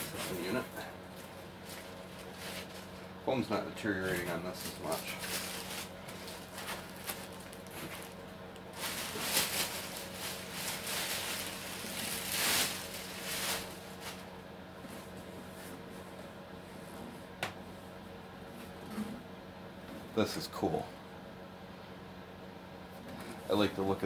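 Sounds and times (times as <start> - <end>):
plastic wrapping crinkling: 0.0 - 3.1, 4.1 - 14.4.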